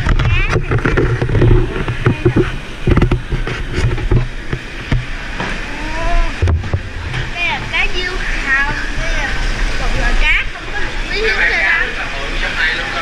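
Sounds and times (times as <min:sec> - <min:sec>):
handheld camera thumps: 0:00.0 - 0:05.6, 0:06.4 - 0:07.2.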